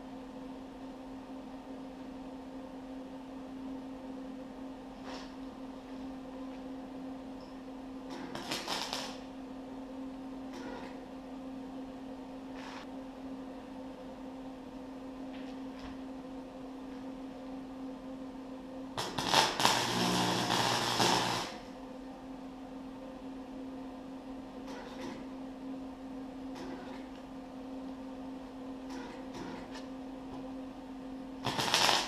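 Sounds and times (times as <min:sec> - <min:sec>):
welder electrical hum: 0:00.0 - 0:32.0
welding arc crackling: 0:08.2 - 0:09.3, 0:19.0 - 0:21.7, 0:31.4 - 0:32.0.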